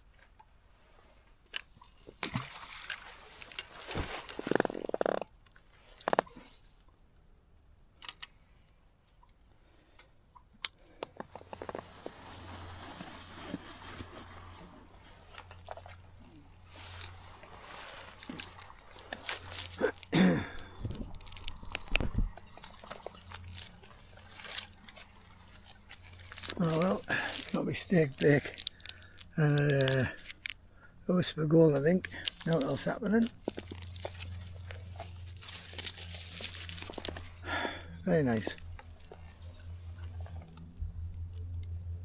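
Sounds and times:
clothing rustling: 11.3 - 15.2
steady low hum: 30.0 - 42.0.

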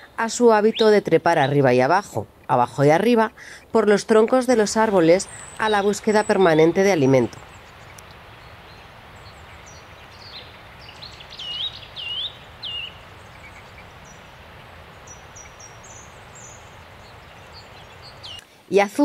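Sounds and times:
songbirds calling: 0.0 - 18.6
background hiss: 0.0 - 19.0
loud whistled bird notes: 5.2 - 14.2.

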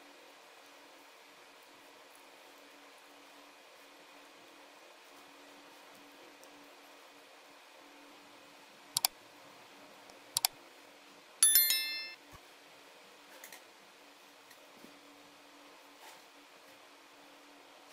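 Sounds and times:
notification bell chime: 11.4 - 12.2.

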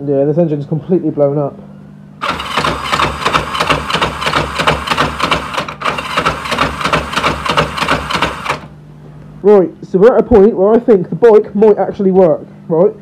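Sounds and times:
electric starter cranking engine: 2.2 - 8.8.

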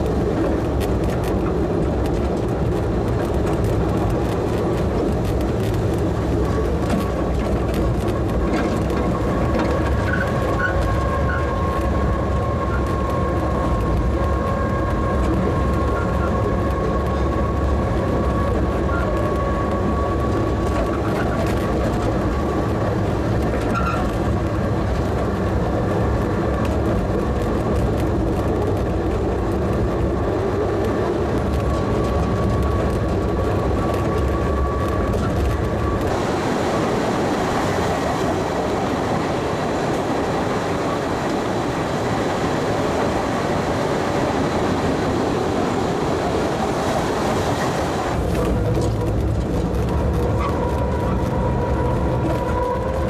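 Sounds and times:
train wheels rumbling on rail: 0.0 - 53.0
harsh rushing noise: 29.2 - 53.0.

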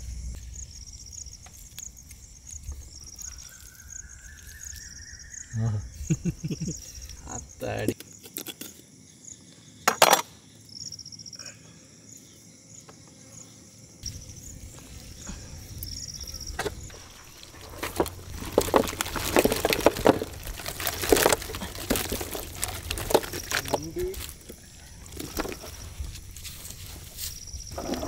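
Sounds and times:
insect trills: 0.0 - 28.0
wet tearing and squelching of meat: 17.4 - 24.4.

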